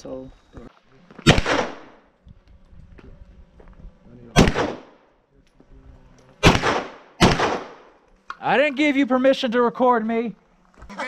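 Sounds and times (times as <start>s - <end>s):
gunshots: 1.2s - 2.0s, 4.3s - 5.0s, 6.4s - 8.0s.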